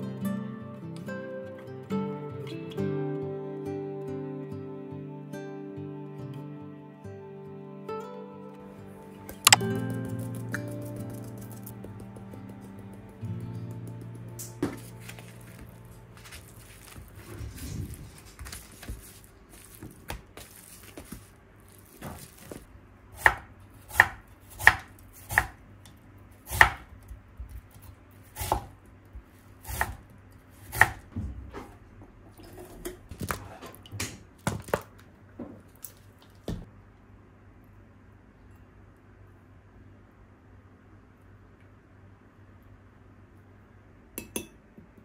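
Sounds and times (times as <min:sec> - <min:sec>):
knife chopping on cutting board: 0:23.2 - 0:25.6, 0:26.5 - 0:26.9, 0:28.4 - 0:28.7, 0:29.7 - 0:30.0, 0:30.6 - 0:31.0.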